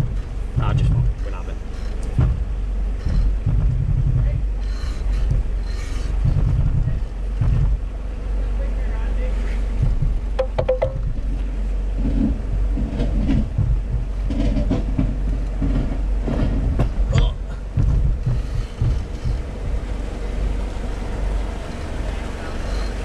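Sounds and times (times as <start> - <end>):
low engine rumble: 0.0 - 23.0
suspension knocks and rattles: 0.0 - 23.0.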